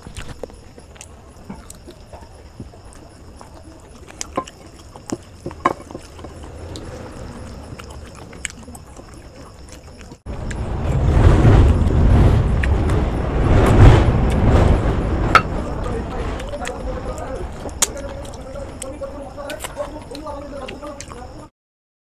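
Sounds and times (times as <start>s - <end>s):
wet chewing: 0.0s - 10.6s, 16.4s - 21.4s.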